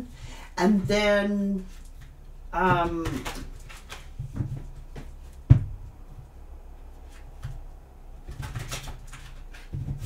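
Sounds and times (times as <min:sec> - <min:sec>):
cards being shuffled: 0:01.6 - 0:05.4, 0:08.2 - 0:10.0.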